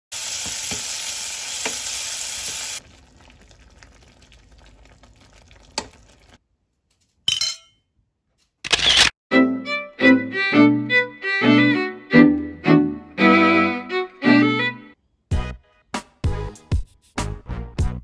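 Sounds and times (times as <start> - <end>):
vegetables sizzling in oil: 0.1 - 2.8.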